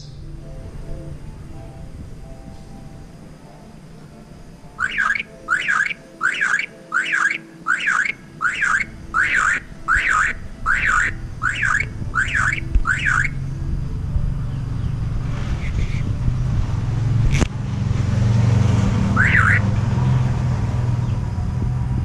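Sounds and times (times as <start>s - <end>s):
myna calling: 3.7s - 13.7s, 19.0s - 19.7s.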